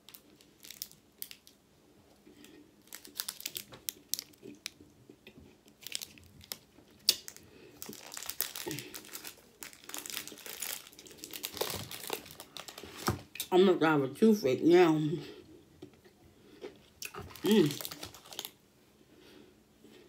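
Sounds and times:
plastic wrapper crinkling: 0:00.0 - 0:01.6, 0:02.8 - 0:04.8, 0:05.6 - 0:13.4, 0:17.0 - 0:18.6.

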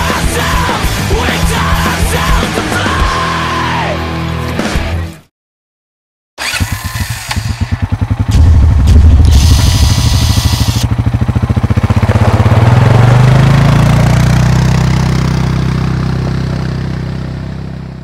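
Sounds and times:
motorcycle engine running: 0:06.4 - 0:18.0
hissing burst: 0:08.3 - 0:10.9.

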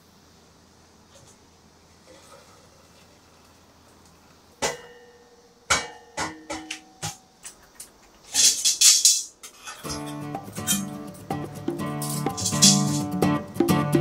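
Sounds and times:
metal utensils clanking: 0:08.2 - 0:11.1, 0:11.9 - 0:13.1.

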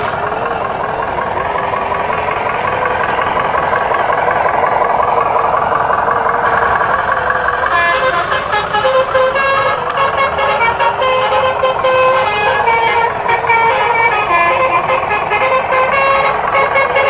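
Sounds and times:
truck engine running: 0:00.0 - 0:17.0
multi-tone horn notes: 0:07.6 - 0:17.0.

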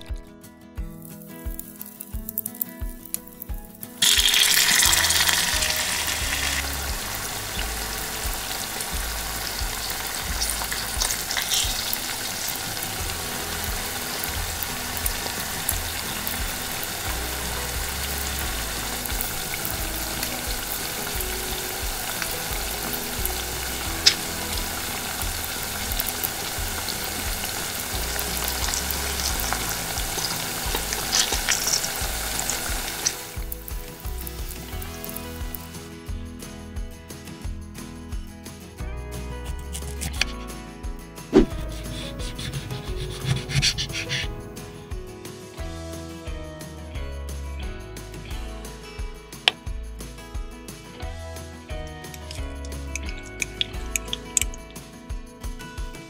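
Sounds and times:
steady frying hiss: 0:01.0 - 0:35.9, 0:52.1 - 0:55.4
meat sizzling in hot oil: 0:01.3 - 0:35.6.

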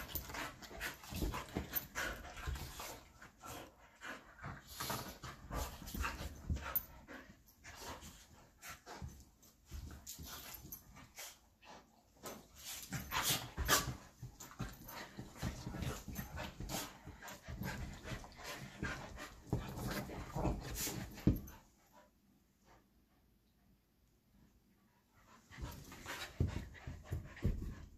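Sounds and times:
dogs scuffling on cushions: 0:00.0 - 0:03.7, 0:12.3 - 0:21.6
dogs panting: 0:00.0 - 0:22.1, 0:25.2 - 0:27.9.

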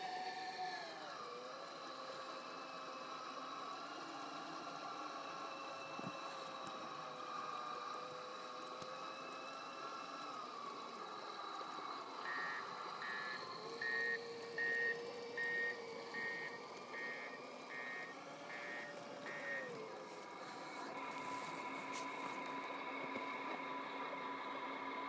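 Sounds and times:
model drive humming: 0:00.0 - 0:25.0
reversing beeper: 0:12.2 - 0:19.9.

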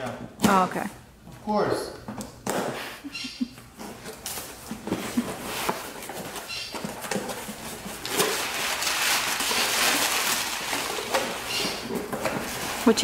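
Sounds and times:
packing paper rustling: 0:03.8 - 0:13.0.

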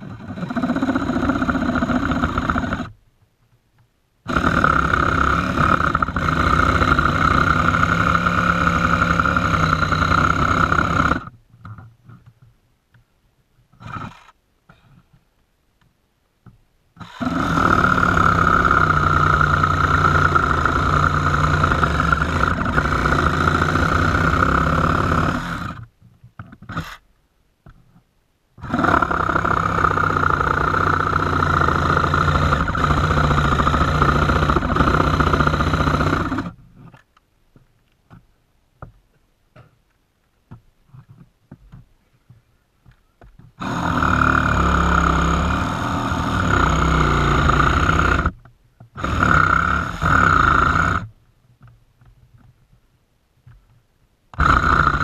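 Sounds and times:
reciprocating saw cutting: 0:00.0 - 0:03.0, 0:04.3 - 0:11.3, 0:13.8 - 0:14.4, 0:17.0 - 0:25.9, 0:26.6 - 0:27.0, 0:28.6 - 0:36.6, 0:43.6 - 0:48.4, 0:49.0 - 0:51.1, 0:54.4 - 0:55.0.

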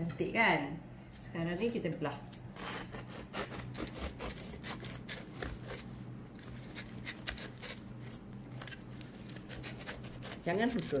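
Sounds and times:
knife sawing through crusty bread: 0:02.5 - 0:08.2, 0:09.0 - 0:11.0.

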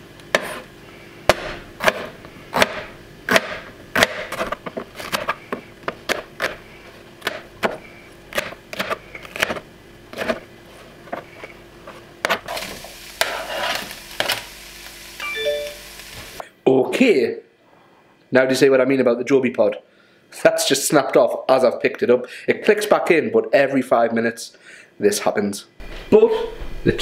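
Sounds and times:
faint steady hum: 0:00.0 - 0:27.0
knife chopping on wooden board: 0:00.3 - 0:00.7, 0:01.3 - 0:06.6, 0:07.2 - 0:10.4.

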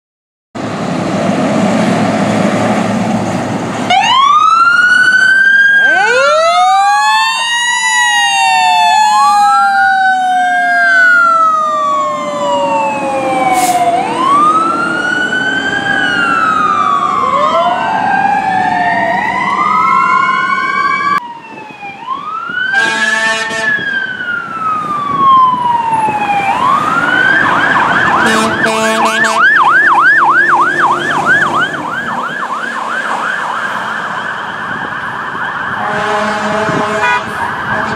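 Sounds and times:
engine and road noise: 0:00.6 - 0:37.9
fire truck siren wailing: 0:00.6 - 0:37.9
siren fast yelp: 0:03.9 - 0:36.4
deep air horn: 0:22.7 - 0:23.8, 0:28.2 - 0:29.5, 0:35.8 - 0:37.9.

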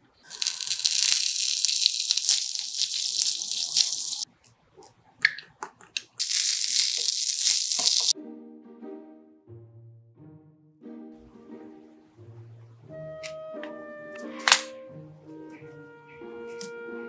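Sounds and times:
bacon sizzling in oil: 0:00.2 - 0:04.3, 0:06.2 - 0:08.2.

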